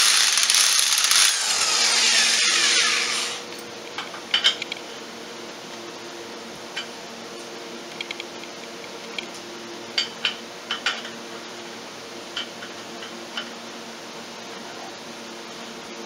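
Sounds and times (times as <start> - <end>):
impact wrench: 0.0 - 3.4.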